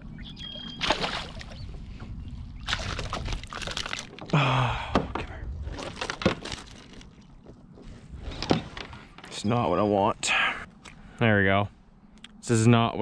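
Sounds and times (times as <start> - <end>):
wind rumbling on microphone: 0.0 - 9.2
water splashing: 0.7 - 1.6, 2.6 - 4.4
fish thrashing in net: 2.7 - 4.3.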